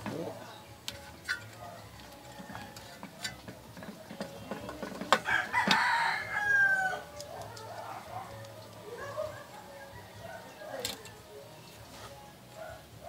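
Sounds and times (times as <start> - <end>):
rooster crowing: 5.2 - 8.1, 8.9 - 10.9.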